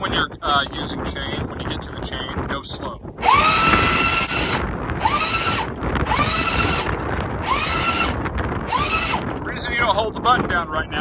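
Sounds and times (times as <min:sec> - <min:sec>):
wind buffeting microphone: 0:00.0 - 0:11.0
windlass motor whirring: 0:03.1 - 0:09.8.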